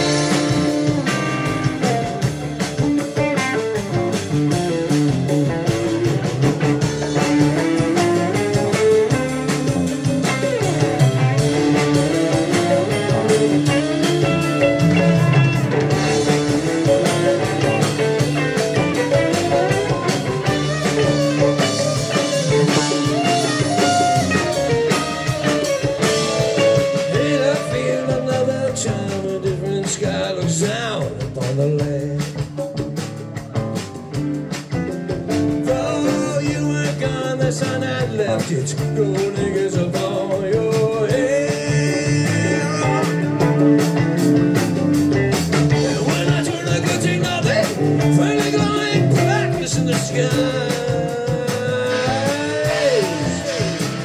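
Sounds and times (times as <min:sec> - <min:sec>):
drums: 0:00.0 - 0:54.0
electric guitar lead line: 0:00.0 - 0:54.0
keyboards: 0:00.0 - 0:54.0.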